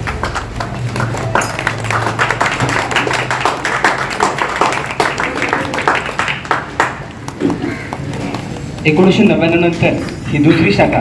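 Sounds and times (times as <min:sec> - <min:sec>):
people applauding: 0:00.0 - 0:09.7.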